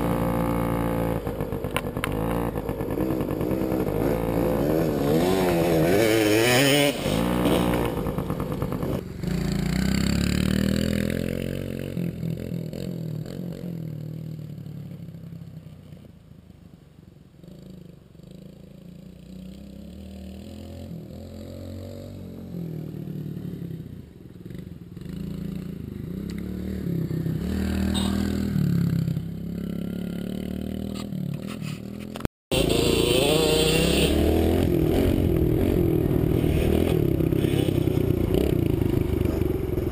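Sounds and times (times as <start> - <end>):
dirt bike engines revving: 0.0 - 12.0, 24.5 - 39.9.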